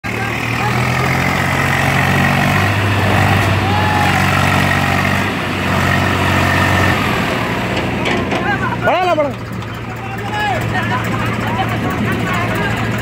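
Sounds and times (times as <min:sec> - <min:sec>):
tractor diesel engine under load: 0:00.0 - 0:13.0.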